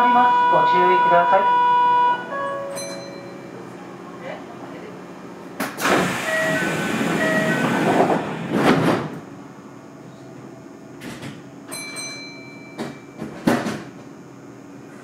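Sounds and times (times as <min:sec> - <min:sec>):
door tone signal: 0:00.0 - 0:03.5, 0:06.2 - 0:08.0
train clunks: 0:00.0 - 0:03.8, 0:05.6 - 0:09.3, 0:10.4 - 0:14.2
train doors thudding shut: 0:05.6 - 0:09.3, 0:11.0 - 0:14.2.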